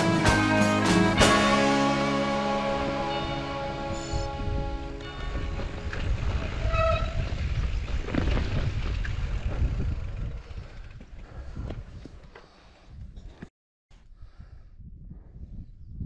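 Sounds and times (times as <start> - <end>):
brief high tone: 1.2 - 5.6
wind buffeting microphone: 3.6 - 16.0
bike knocks and rattles: 5.3 - 12.5.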